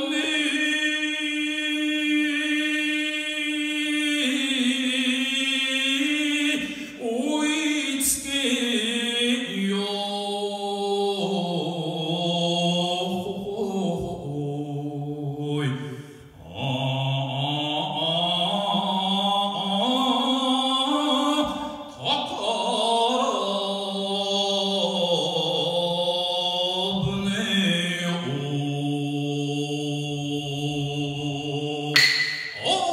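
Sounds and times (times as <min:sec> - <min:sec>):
man singing unaccompanied: 0:16.5 - 0:32.9.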